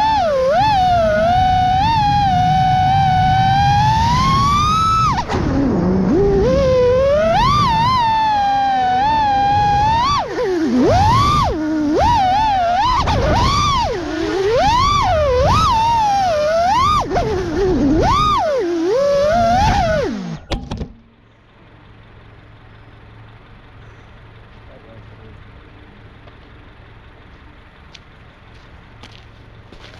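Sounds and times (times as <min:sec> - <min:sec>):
quadcopter motors whining: 0:00.0 - 0:20.5.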